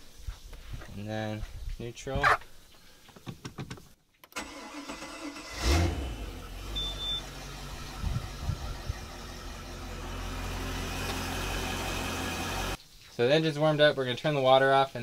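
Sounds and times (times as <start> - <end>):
boat engine starting and idling: 4.4 - 12.8.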